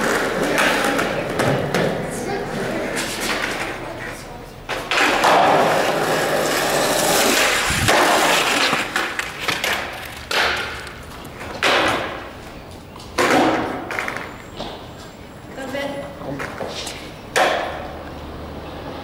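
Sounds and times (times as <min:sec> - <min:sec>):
skateboard hits echoing: 0:00.0 - 0:03.8, 0:04.7 - 0:12.3, 0:13.2 - 0:14.8, 0:16.4 - 0:18.0
skateboard wheels rolling on concrete: 0:00.0 - 0:19.0.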